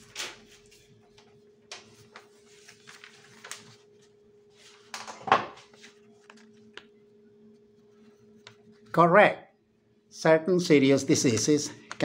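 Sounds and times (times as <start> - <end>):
paper sheets rustling: 0.0 - 6.9
faint steady hum: 0.5 - 12.0.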